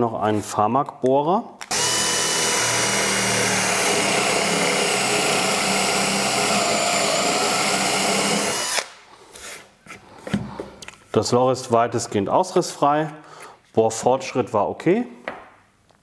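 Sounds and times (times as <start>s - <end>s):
power drill boring into wood: 1.7s - 8.9s.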